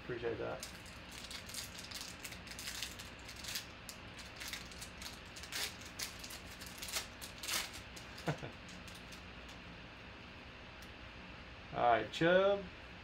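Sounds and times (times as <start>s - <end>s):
foil wrapper crinkling: 0.5s - 9.6s.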